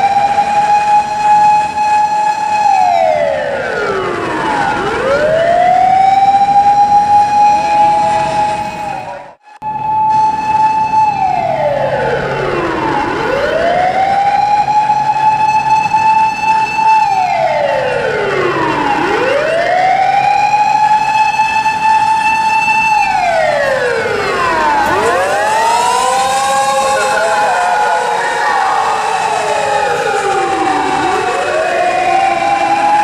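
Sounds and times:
ambulance siren: 0:00.0 - 0:33.0.

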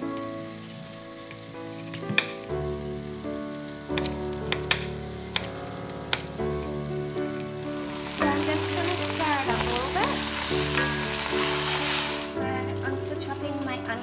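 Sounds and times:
meat sizzling in a pot: 0:00.0 - 0:14.0
slow background music: 0:00.0 - 0:14.0
wooden spoon stirring: 0:04.5 - 0:13.0.

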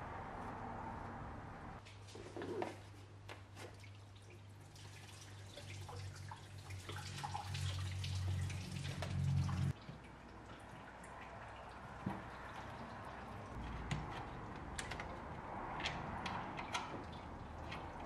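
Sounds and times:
coolant pouring and dripping: 0:03.6 - 0:13.6.

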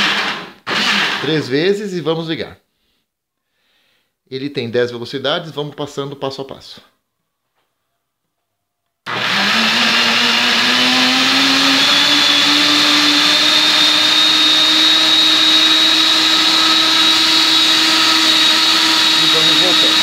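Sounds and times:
blender motor whine: 0:00.0 - 0:01.4, 0:09.1 - 0:20.0.

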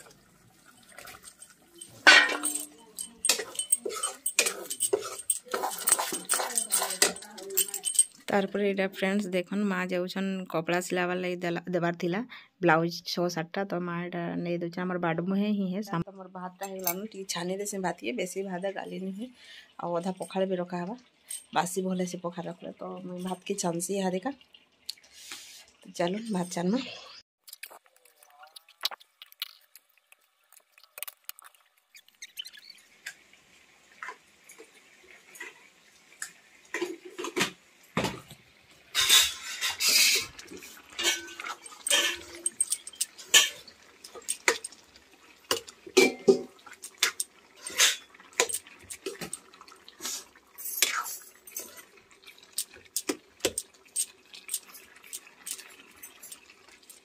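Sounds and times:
metal spatula scraping a pan: 0:01.8 - 0:07.9, 0:38.9 - 0:44.7, 0:45.5 - 0:49.4
faint sizzle: 0:43.2 - 0:57.0.

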